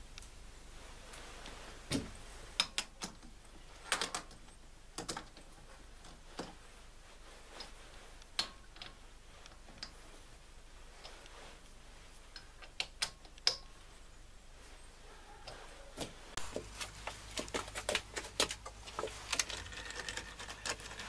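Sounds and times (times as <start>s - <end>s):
wood and metal clicks: 1.9s - 6.6s, 12.3s - 13.8s, 16.4s - 21.0s.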